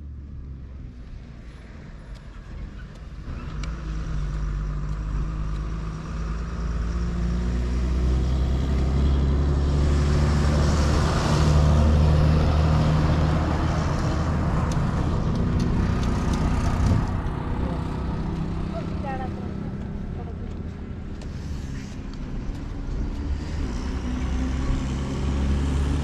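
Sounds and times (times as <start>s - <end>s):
auto-rickshaw engine running: 2.1s - 26.0s.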